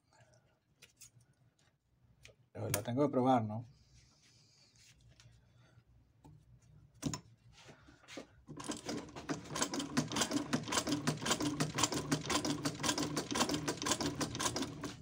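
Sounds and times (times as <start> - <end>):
sewing machine clattering: 8.5 - 15.0.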